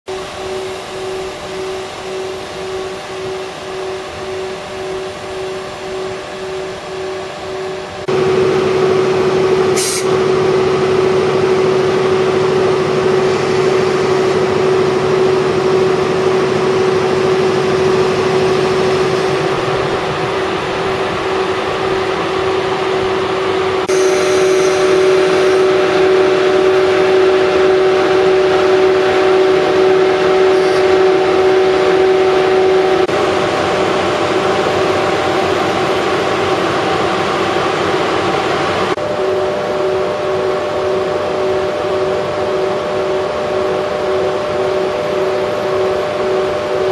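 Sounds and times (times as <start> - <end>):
higher tone: 0.1 - 37.0
locomotive blowers humming: 0.1 - 46.9.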